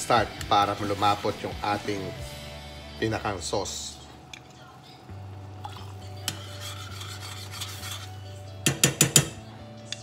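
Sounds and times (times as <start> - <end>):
metal spoon scraping ceramic cup: 6.2 - 9.0.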